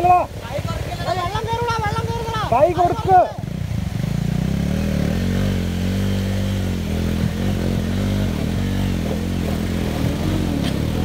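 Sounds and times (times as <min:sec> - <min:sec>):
vehicle engine revving: 0:03.3 - 0:11.0.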